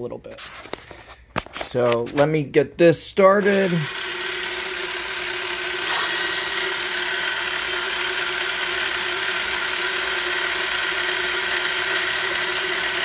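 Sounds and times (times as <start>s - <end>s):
boring bar mechanical whir: 3.3s - 13.0s.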